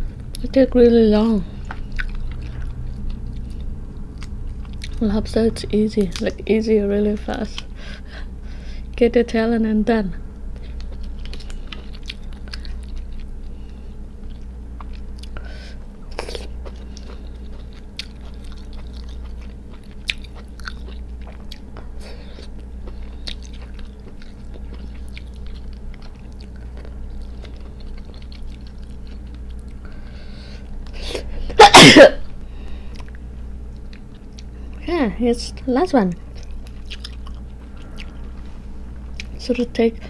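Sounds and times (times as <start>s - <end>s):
low hum: 0.0s - 40.0s
chewing: 1.6s - 5.0s, 10.6s - 15.4s, 16.0s - 30.0s, 32.8s - 34.8s, 36.1s - 39.4s.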